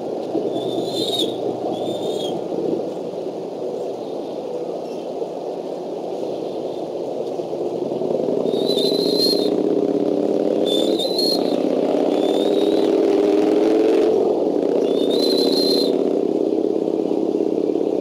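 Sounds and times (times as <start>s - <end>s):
low engine drone: 0.0s - 18.0s
high thin whistled calls: 0.5s - 2.4s, 8.4s - 9.6s, 10.6s - 13.0s, 14.8s - 16.0s.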